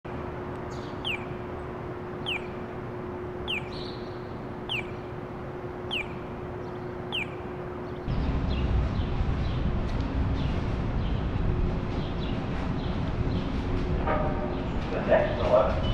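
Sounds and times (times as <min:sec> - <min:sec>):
city rumble: 0:00.0 - 0:15.9
steady low hum: 0:00.1 - 0:15.9
high falling chirp: 0:00.7 - 0:02.7, 0:03.4 - 0:05.2, 0:05.8 - 0:08.1.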